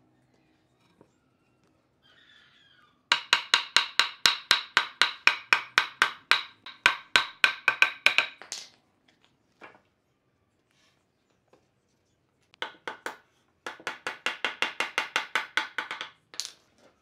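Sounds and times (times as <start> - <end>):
mallet knocking on wood: 3.1 - 8.6, 12.6 - 16.2.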